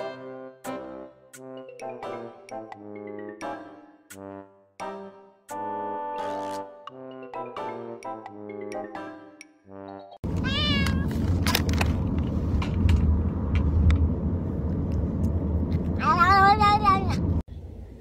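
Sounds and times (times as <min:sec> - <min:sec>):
steady low rumble: 0:10.2 - 0:18.0
cat meowing: 0:10.4 - 0:11.2.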